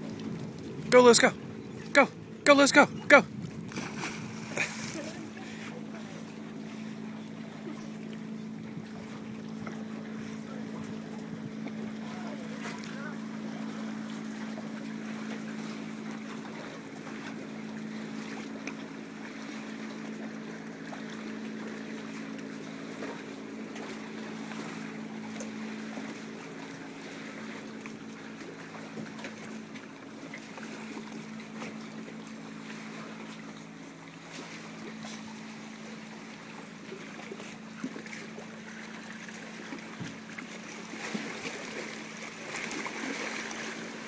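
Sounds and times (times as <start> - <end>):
light wind: 0.0 - 14.9
motor hum: 0.0 - 44.0
water noise: 0.0 - 44.0.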